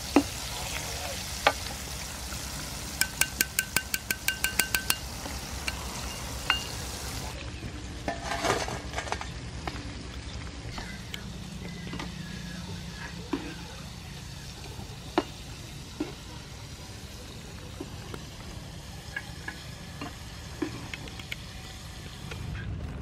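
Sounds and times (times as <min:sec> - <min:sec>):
food deep-frying in oil: 0:00.0 - 0:23.0
metal skimmer clinking on pan: 0:03.0 - 0:06.8.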